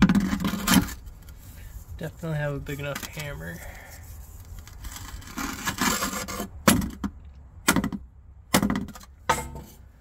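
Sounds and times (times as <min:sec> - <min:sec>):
rubbing and scraping: 0:00.0 - 0:07.1.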